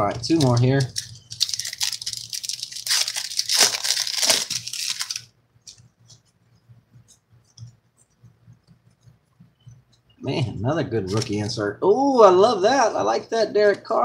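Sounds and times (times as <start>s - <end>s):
wrapper tearing and crinkling: 0.3s - 5.3s
cards being shuffled: 0.3s - 6.2s.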